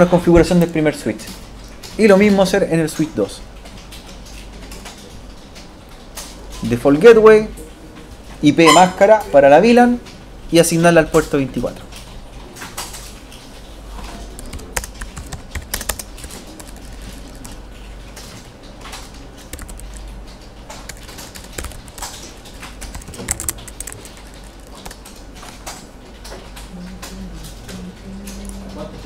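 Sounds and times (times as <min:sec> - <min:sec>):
keyboard typing: 0:14.1 - 0:28.6.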